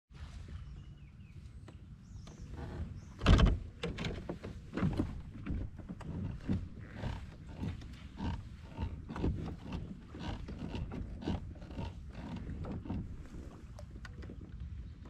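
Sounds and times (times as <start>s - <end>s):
water knocking against kayak hull: 3.2s - 15.0s.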